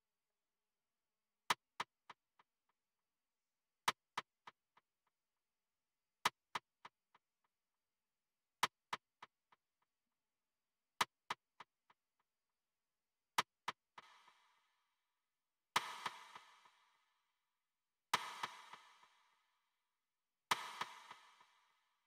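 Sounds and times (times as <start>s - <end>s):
snare drum hits with delay echoes: 15.8s - 17.0s, 18.2s - 19.4s, 20.5s - 21.9s.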